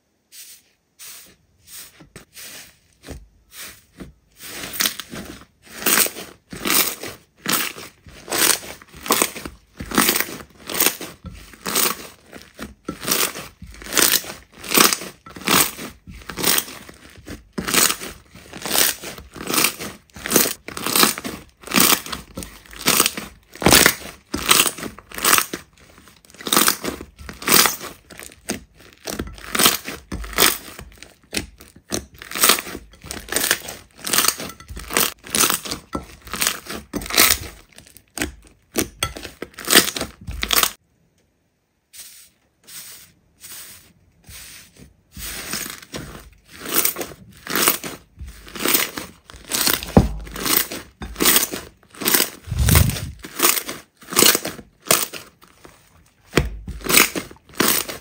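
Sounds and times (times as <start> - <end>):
slime squished by hand: 47.6 - 53.5.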